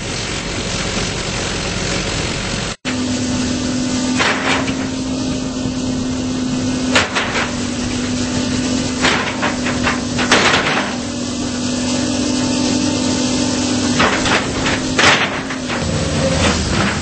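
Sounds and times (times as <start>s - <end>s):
excavator diesel engine hum: 0.0s - 17.0s
sharp metal clanking: 6.8s - 12.0s, 13.7s - 17.0s.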